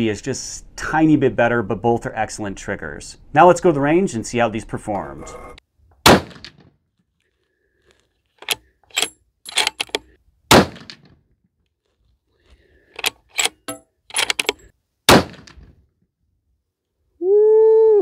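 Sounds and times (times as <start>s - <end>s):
rifle shots with echo: 6.0s - 6.6s, 10.5s - 11.1s, 14.2s - 15.7s
sharp clicks and cracks: 6.3s - 10.1s, 10.7s - 15.7s.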